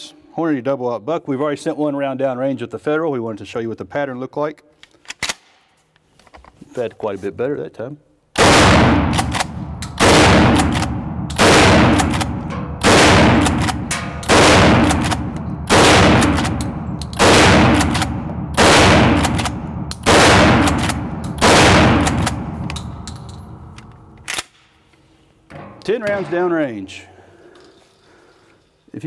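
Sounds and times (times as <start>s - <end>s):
shotgun blasts echoing indoors: 8.3s - 24.8s.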